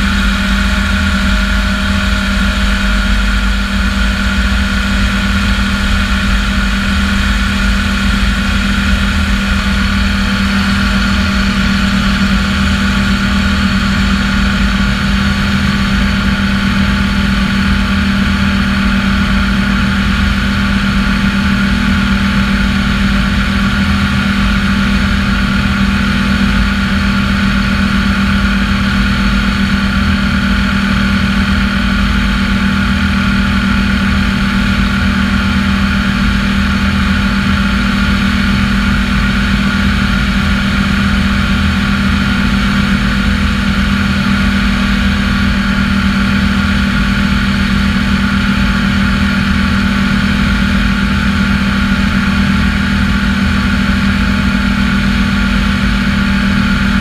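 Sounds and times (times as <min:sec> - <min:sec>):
wind rushing over microphone: 0:00.0 - 0:18.6
aircraft engine running: 0:00.0 - 0:57.0.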